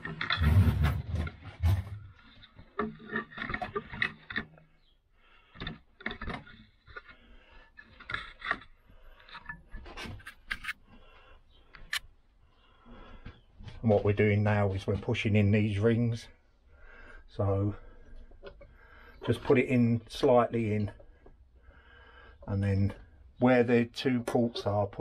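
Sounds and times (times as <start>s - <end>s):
tools clicking and scraping: 0.0s - 11.0s, 11.7s - 12.1s.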